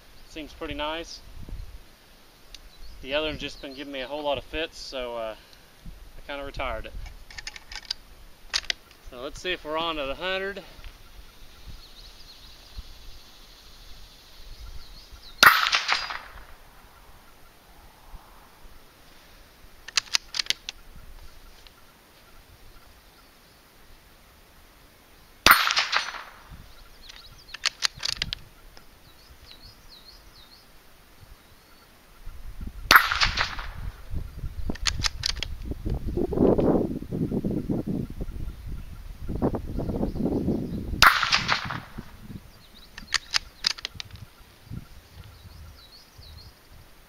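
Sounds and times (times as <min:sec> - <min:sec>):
birds chirping: 0:00.0 - 0:47.0
metallic clicks of rifle bolt: 0:07.0 - 0:09.0, 0:19.8 - 0:20.8, 0:27.0 - 0:28.4, 0:34.7 - 0:35.7, 0:42.9 - 0:44.2
rifle shot: 0:15.4 - 0:16.6, 0:25.4 - 0:26.5, 0:32.9 - 0:34.0, 0:41.0 - 0:42.1.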